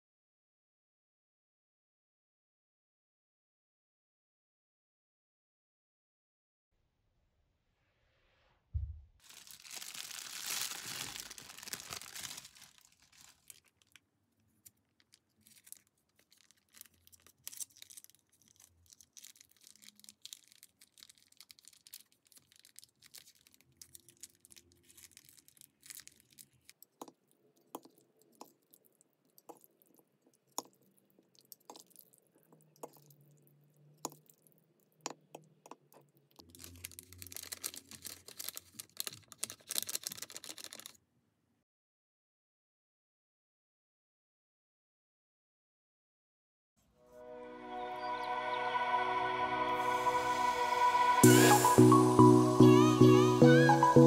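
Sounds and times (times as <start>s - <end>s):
faint handling sounds: 9.2s - 33.2s, 34.0s - 41.0s
plastic packaging crinkling: 9.2s - 33.2s, 35.1s - 41.0s.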